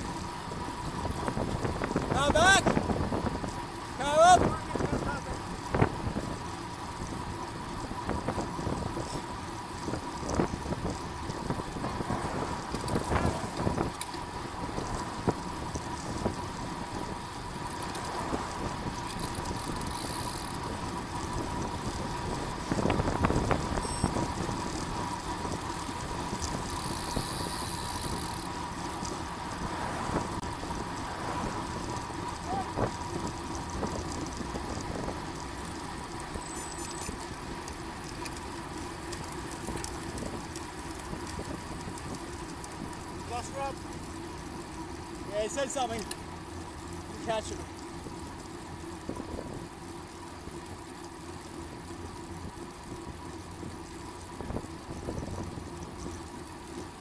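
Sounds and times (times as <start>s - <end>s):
bicycle road noise: 0.0s - 57.0s
faint steady whine: 22.8s - 29.2s.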